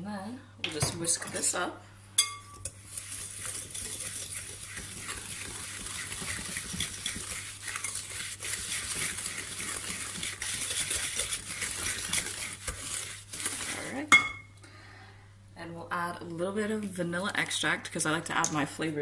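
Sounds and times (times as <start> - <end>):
wire whisk scratching glass bowl: 2.5 - 14.0.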